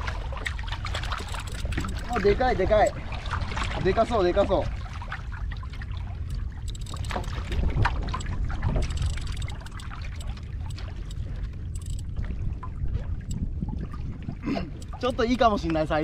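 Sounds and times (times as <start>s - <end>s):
water lapping against hull: 0.0s - 16.0s
wind rumbling on microphone: 0.0s - 16.0s
small clicks: 0.9s - 2.1s, 6.3s - 12.1s.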